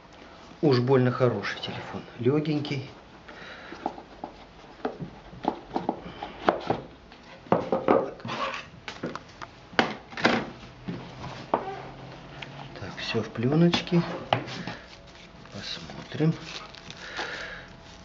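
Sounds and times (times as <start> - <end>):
packaging rustling: 13.6 - 18.0.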